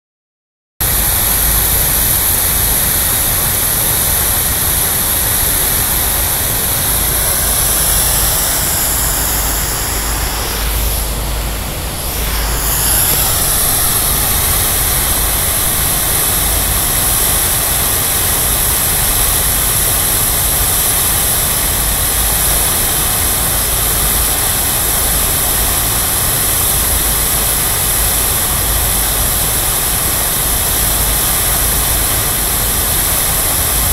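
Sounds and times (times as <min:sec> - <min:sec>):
fountain water splashing: 0:00.8 - 0:33.9
low rumble: 0:05.2 - 0:17.6.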